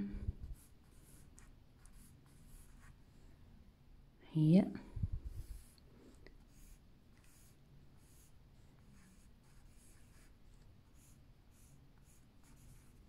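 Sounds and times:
drawing stick scratching on paper: 0.4 - 3.0, 5.3 - 13.0.

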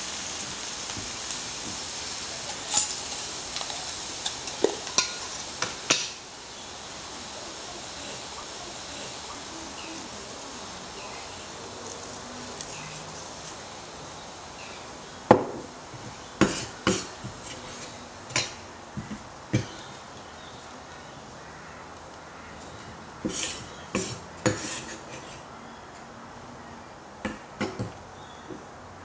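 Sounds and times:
kitchenware clinking on wood and metal: 2.5 - 6.2.

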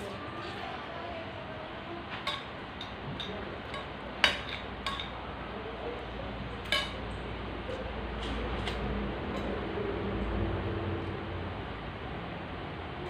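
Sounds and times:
spoons clinking against plates: 2.1 - 5.2, 6.6 - 7.2.

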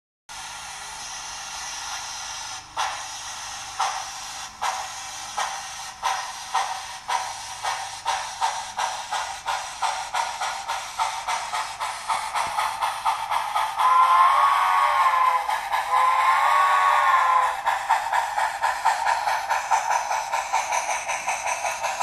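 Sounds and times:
model locomotive steam chuffs: 0.3 - 22.0
steam whistle blowing: 13.7 - 17.7.

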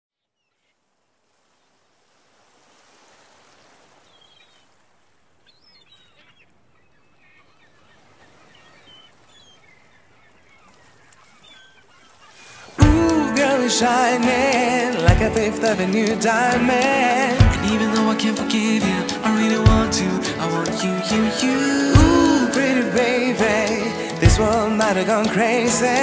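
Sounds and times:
birds chirping and calling: 5.4 - 26.0.

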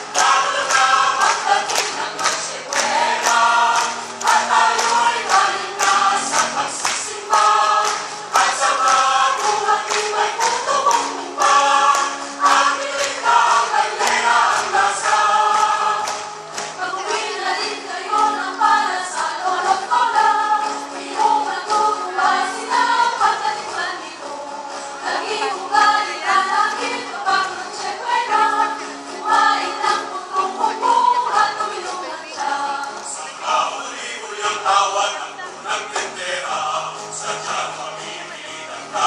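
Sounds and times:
choir singing: 0.0 - 39.0.

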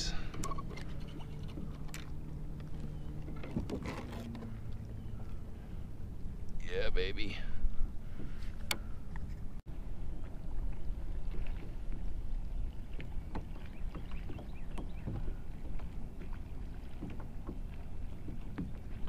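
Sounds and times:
low rumble of wind and water: 0.0 - 19.0
waves slapping against kayak hull: 0.5 - 4.9, 8.0 - 9.4, 10.2 - 19.0.

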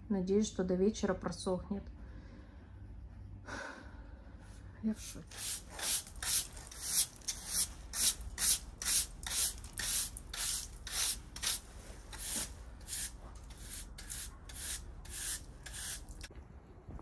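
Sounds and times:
broom sweeping floor: 5.0 - 16.3.

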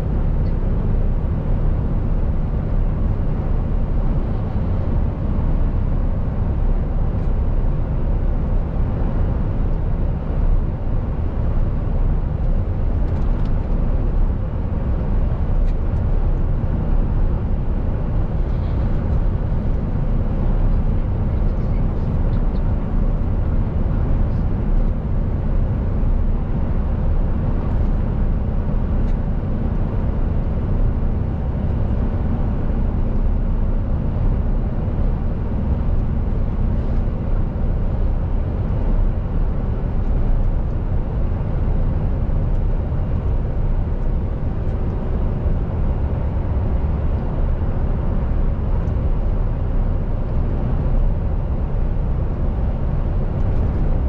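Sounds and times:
diesel engine drone: 0.0 - 54.0
road noise: 0.0 - 54.0
faint engine tone: 13.0 - 54.0.

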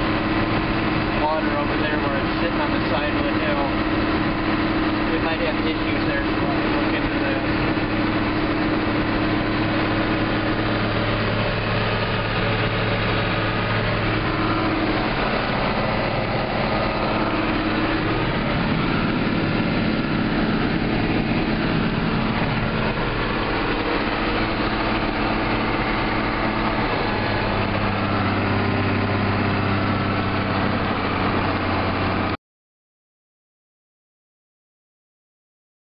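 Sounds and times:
tractor diesel engine drone: 0.0 - 32.4.

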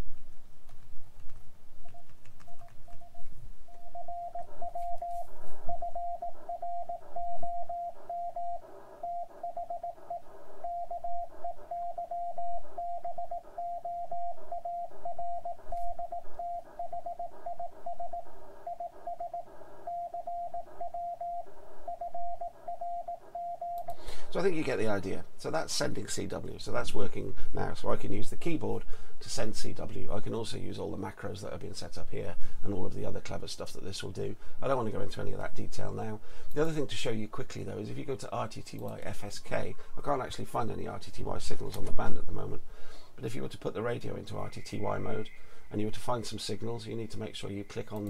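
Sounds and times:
morse code tone: 1.8 - 24.2, 44.2 - 48.0.

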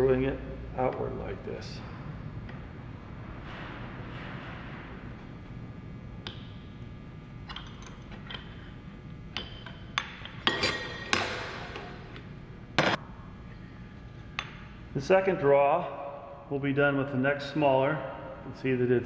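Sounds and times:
metallic ring: 9.4 - 12.0.

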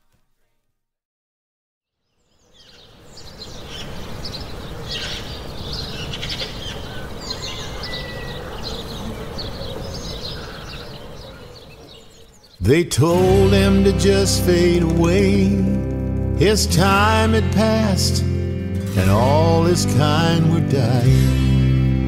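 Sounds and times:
small birds chirping: 1.9 - 13.5.

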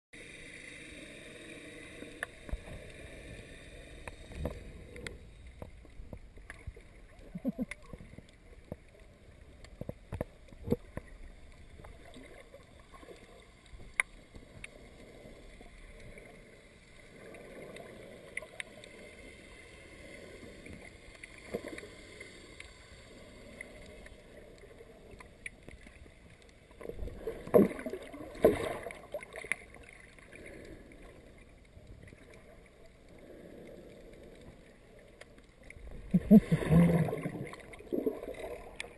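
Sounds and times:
muffled underwater water wash: 0.2 - 38.9
rushing water: 26.8 - 31.4, 35.7 - 38.9.

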